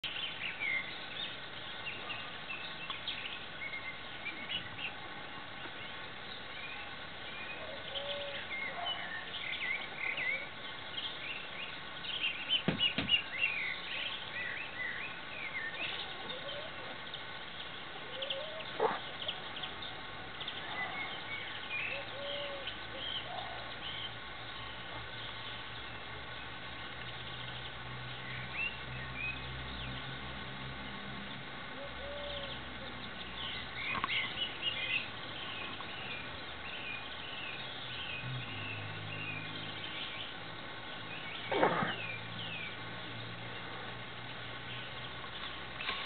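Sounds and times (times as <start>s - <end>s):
small birds chirping: 0.0s - 46.0s
sharp knocks: 12.6s - 13.2s.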